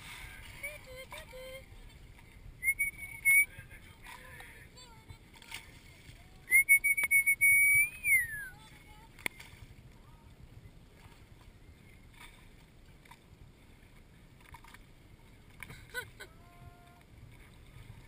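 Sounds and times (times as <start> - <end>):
loud whistle: 2.6 - 3.5, 6.5 - 8.5.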